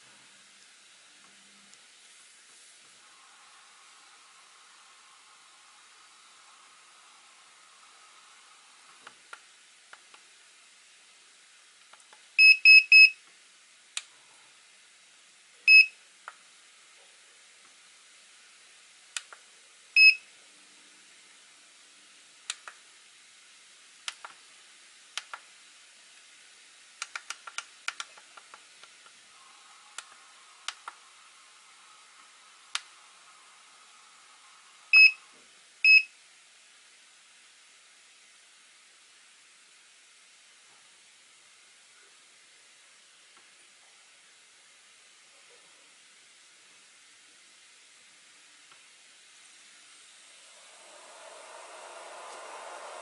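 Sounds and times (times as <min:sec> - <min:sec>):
battery charger beeping: 0:12.4 - 0:13.2, 0:34.9 - 0:35.2.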